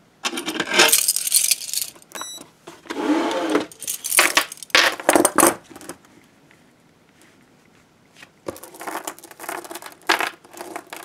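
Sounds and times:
chain and cuffs clanking: 0.8s - 2.3s, 3.6s - 4.7s
short high beep: 2.2s - 2.4s.

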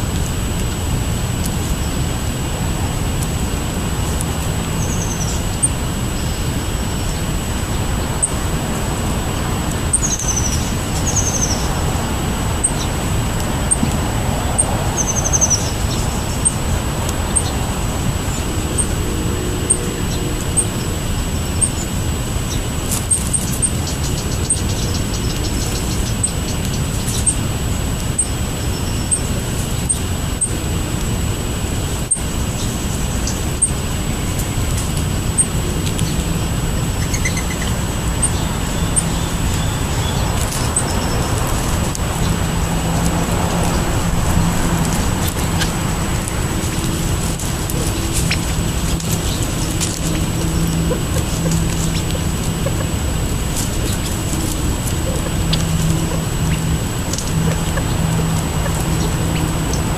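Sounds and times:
road traffic rumble: 0.0s - 59.9s
bird chirps: 4.7s - 7.2s, 9.9s - 11.7s, 14.6s - 16.6s, 22.5s - 27.4s, 37.0s - 42.5s, 44.9s - 59.9s.

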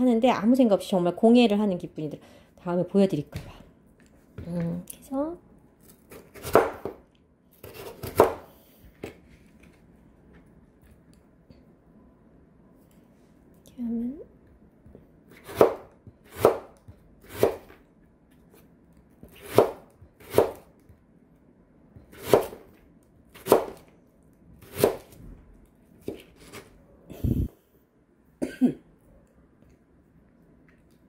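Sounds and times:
knife cutting on plastic board: 7.6s - 8.4s.

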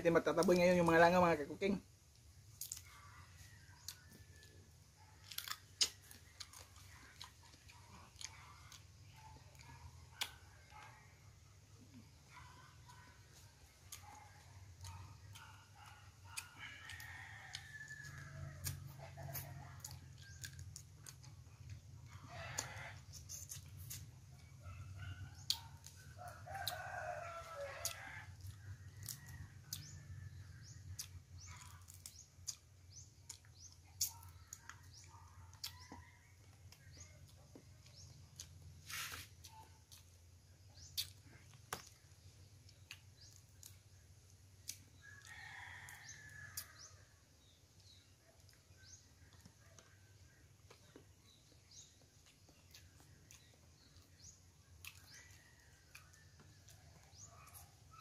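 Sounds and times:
faint rooster crowing: 2.6s - 39.7s, 44.6s - 58.0s.

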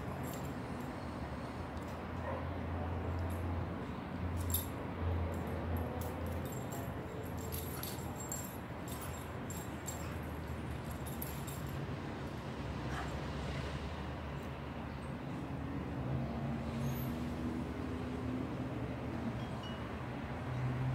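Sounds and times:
dog tags jingling: 0.0s - 0.8s, 4.4s - 11.8s.

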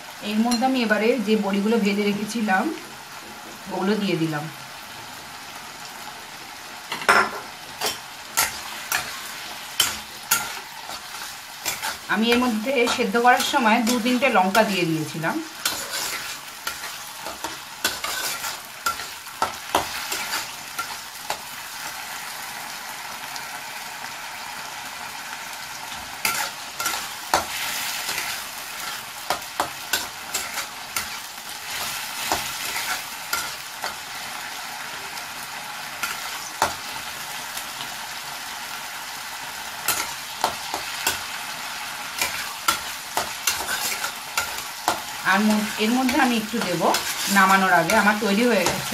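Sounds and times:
vegetables sizzling in oil: 0.0s - 48.9s
spatula scraping and tapping pan: 9.8s - 14.8s, 15.6s - 21.4s, 26.2s - 34.0s, 39.9s - 41.2s, 42.2s - 48.9s.

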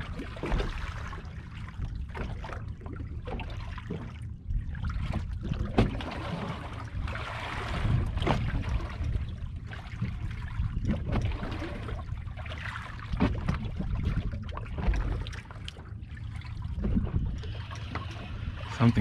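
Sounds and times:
waves lapping against boat hull: 0.0s - 19.0s
wind rumbling on microphone: 4.2s - 12.4s, 13.0s - 19.0s.

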